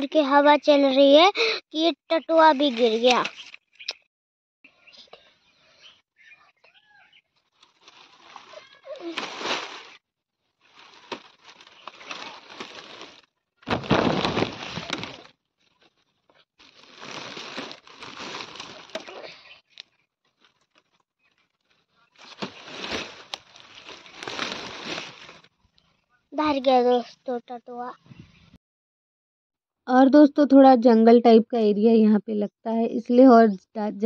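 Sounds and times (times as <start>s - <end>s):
plastic sheeting rustling: 7.5s - 19.5s, 20.3s - 25.5s.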